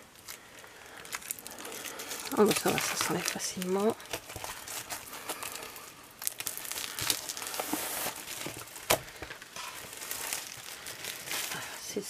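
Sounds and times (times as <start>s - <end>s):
plastic wrapping crinkling: 0.0s - 12.0s
paper sheets rustling: 1.5s - 5.7s, 6.6s - 11.7s.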